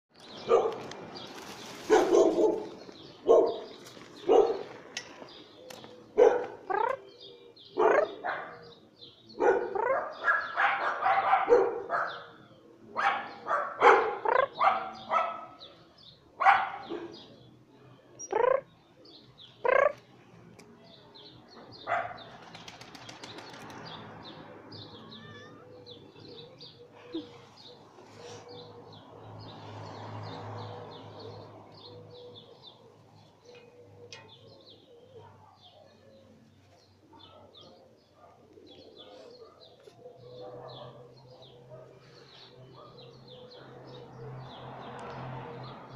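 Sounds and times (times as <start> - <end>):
cat meowing: 25.0 - 25.8.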